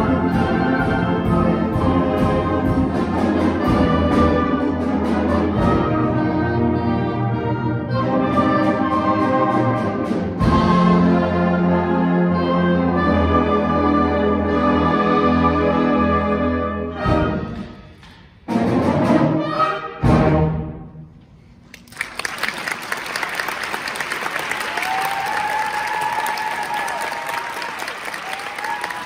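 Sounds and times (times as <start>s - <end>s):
concert band chords: 0.0s - 20.8s
audience applause: 21.7s - 29.0s.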